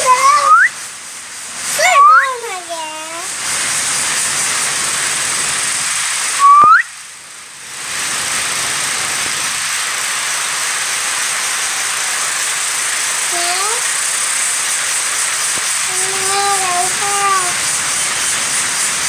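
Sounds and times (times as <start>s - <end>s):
young child squealing: 0.0s - 0.7s, 1.8s - 2.5s
loud steady hiss: 0.0s - 19.0s.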